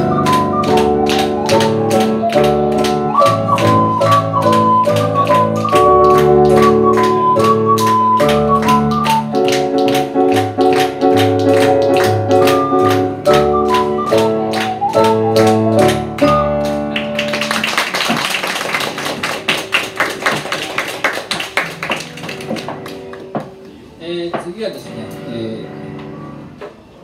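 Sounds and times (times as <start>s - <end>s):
ocarina playing a melody: 0.0s - 17.4s
electronic keyboard chords: 0.0s - 17.6s
audience applause: 0.0s - 23.4s.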